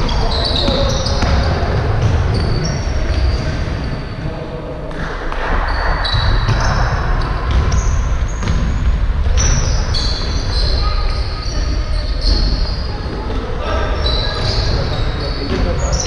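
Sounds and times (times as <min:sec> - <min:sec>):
sneakers squeaking on floor: 0:00.0 - 0:04.4, 0:05.6 - 0:16.0
basketball bouncing: 0:00.4 - 0:03.5, 0:05.3 - 0:10.9, 0:12.0 - 0:15.9.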